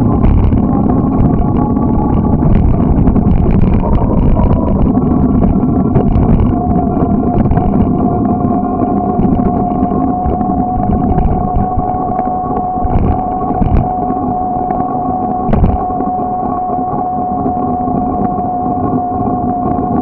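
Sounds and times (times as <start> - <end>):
bicycle rolling on asphalt: 0.0 - 15.8
constant mid-pitched hum: 0.0 - 20.0
wind noise: 0.0 - 20.0.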